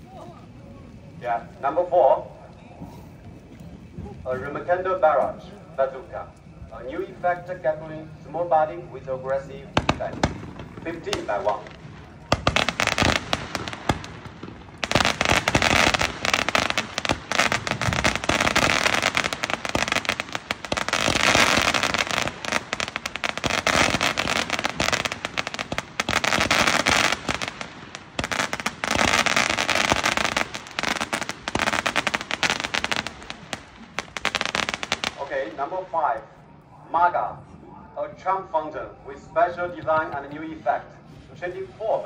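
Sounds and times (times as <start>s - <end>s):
firework crackling pops: 9.7s - 35.6s.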